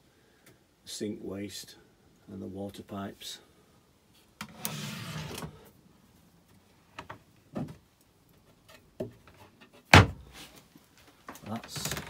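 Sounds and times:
drawer sliding rumble: 0:04.4 - 0:05.6.

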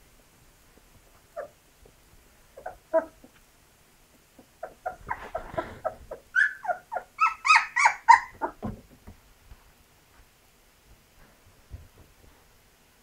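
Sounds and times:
puppies squeaking and whimpering: 0:04.6 - 0:08.6.

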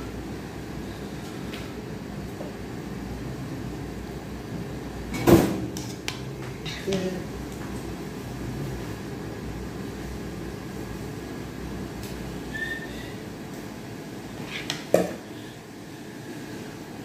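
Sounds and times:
low room hum and hiss: 0:00.0 - 0:17.0
faint whistle-like tone: 0:12.5 - 0:13.2.

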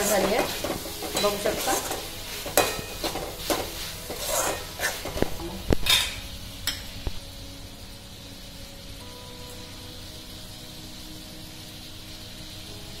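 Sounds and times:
metal spatula scraping pan: 0:00.0 - 0:06.9
light sizzle: 0:00.0 - 0:13.0.

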